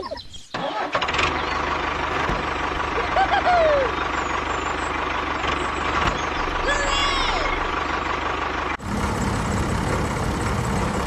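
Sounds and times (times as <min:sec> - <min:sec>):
tractor engine idling: 0:00.6 - 0:11.0.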